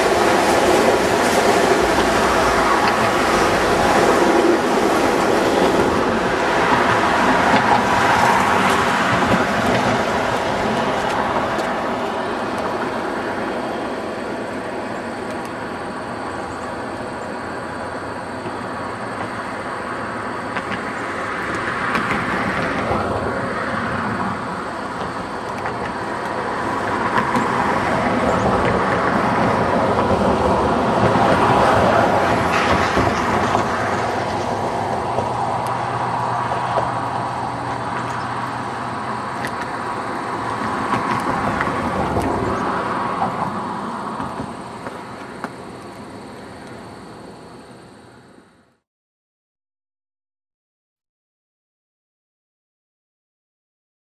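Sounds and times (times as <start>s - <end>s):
wheels clickety-clack: 0.0s - 14.6s, 18.4s - 46.9s
train cars rolling past: 0.0s - 48.4s.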